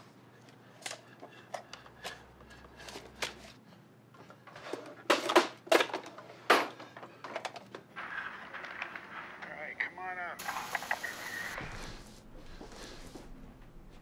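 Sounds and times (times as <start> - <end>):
objects knocking and clattering: 4.2 - 9.5.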